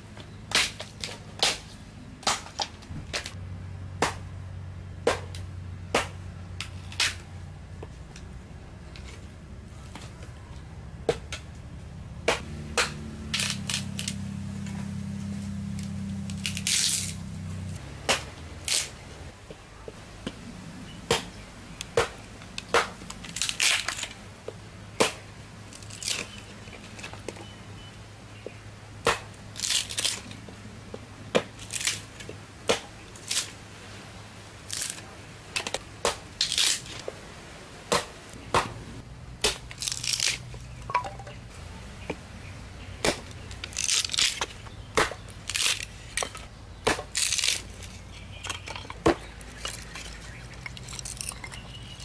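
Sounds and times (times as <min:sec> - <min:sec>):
hatchet chopping wood: 0:04.0 - 0:04.2, 0:05.0 - 0:07.2, 0:12.3 - 0:13.9, 0:18.0 - 0:18.9, 0:21.9 - 0:23.0, 0:29.0 - 0:29.3, 0:32.7 - 0:32.9, 0:39.4 - 0:41.4, 0:43.0 - 0:47.6
wood splitting apart: 0:12.3 - 0:14.2, 0:15.8 - 0:17.2, 0:18.1 - 0:19.1, 0:22.0 - 0:24.2, 0:25.0 - 0:27.1, 0:29.0 - 0:30.4, 0:31.4 - 0:33.6, 0:34.6 - 0:37.0, 0:39.4 - 0:41.4, 0:43.0 - 0:52.0.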